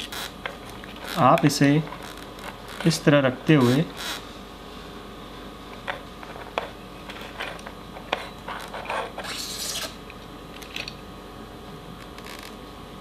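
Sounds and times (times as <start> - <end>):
small clicks and scrapes: 5.8 - 9.9.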